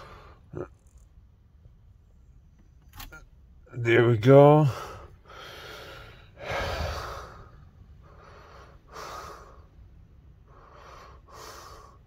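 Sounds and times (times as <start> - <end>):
person breathing heavily: 0.0 - 0.5, 4.7 - 12.0.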